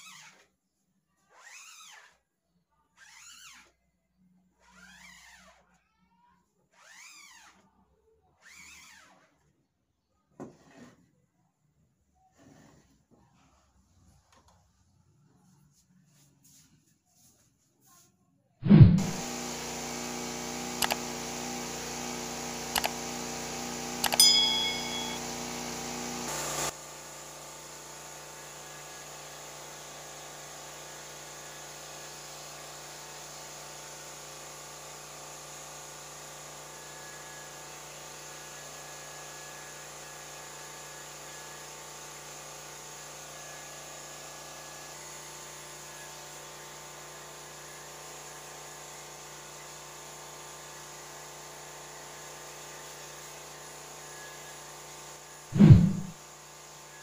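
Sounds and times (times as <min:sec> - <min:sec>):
hair dryer running: 0:18.8 - 0:26.7
brief loud noise: 0:55.6 - 0:56.2.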